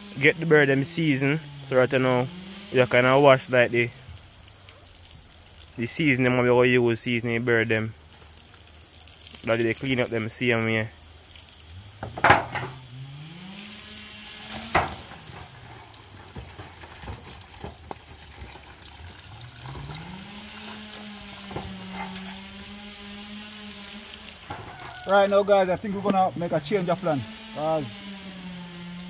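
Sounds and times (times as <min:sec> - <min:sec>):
small motor humming: 0:00.0 - 0:05.8, 0:10.8 - 0:17.2, 0:18.7 - 0:29.0
water running from hose: 0:00.0 - 0:29.0.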